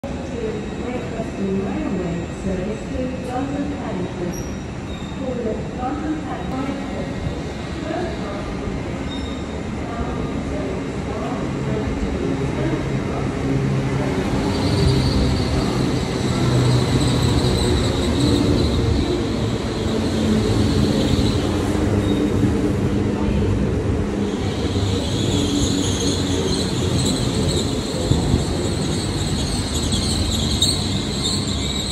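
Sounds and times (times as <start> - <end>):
train rumbling past: 3.7 - 31.9
high wheel squeal: 14.4 - 22.4, 24.3 - 31.9.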